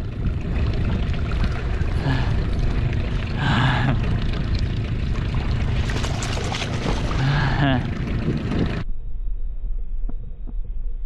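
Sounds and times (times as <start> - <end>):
wind noise on microphone: 0.0 - 3.0, 7.9 - 11.0
lapping water: 0.0 - 8.8
fish thrashing and splashing: 0.1 - 8.8.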